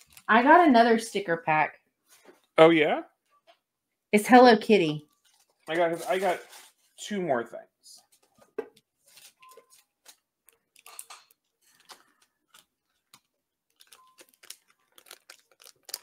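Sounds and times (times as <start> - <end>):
packaging clicks and rustles: 9.1 - 16.0.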